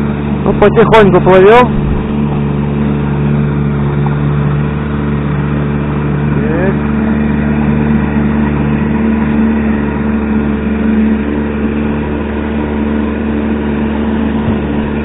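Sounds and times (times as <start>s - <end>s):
outboard motor running: 0.0s - 15.0s
water rushing and splashing: 0.0s - 15.0s.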